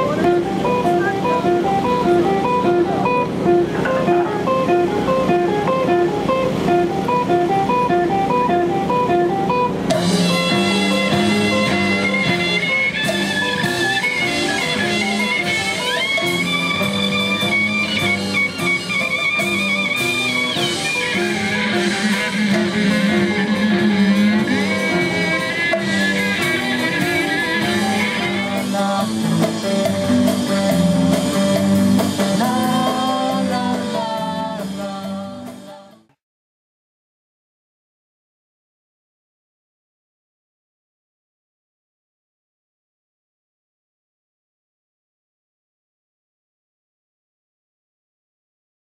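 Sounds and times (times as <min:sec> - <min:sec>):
violin: 0:00.0 - 0:28.9
drum kit: 0:00.0 - 0:36.1
electric guitar: 0:00.0 - 0:36.2.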